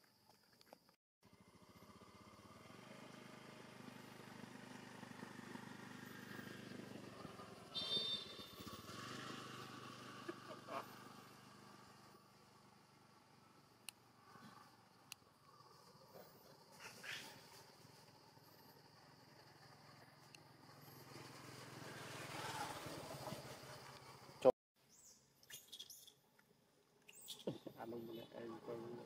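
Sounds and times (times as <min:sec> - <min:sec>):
vehicle engine running: 0:01.2 - 0:14.3.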